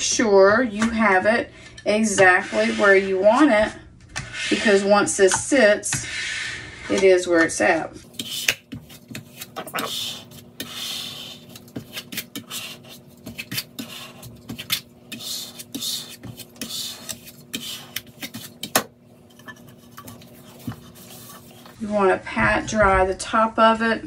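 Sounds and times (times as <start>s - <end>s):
squeegee scraping vinyl on glass: 2.0s - 3.5s, 6.0s - 21.8s.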